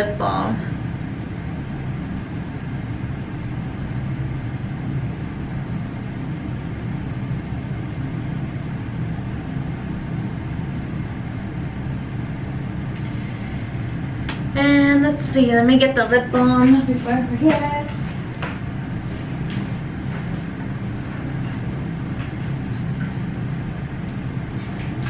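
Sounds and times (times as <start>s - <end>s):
low hum and rumble: 0.0s - 25.0s.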